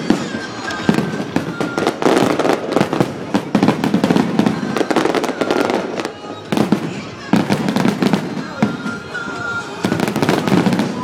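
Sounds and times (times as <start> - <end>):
faint firework whistles: 0.0 - 11.0
fireworks bangs and crackles: 0.0 - 11.0.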